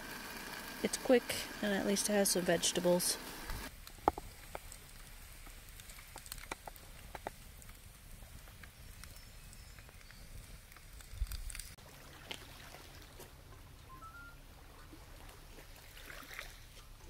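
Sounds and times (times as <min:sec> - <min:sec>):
campfire crackling: 0:00.0 - 0:12.5
sharp pops of fire: 0:03.4 - 0:11.8.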